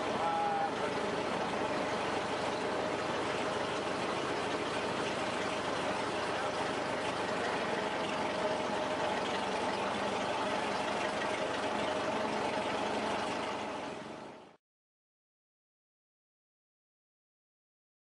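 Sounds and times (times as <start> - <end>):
car engine running at low speed: 0.0 - 14.6.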